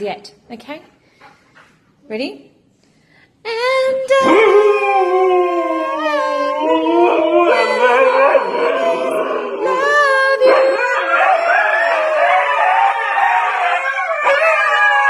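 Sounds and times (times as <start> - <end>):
dog howling: 4.2 - 15.0.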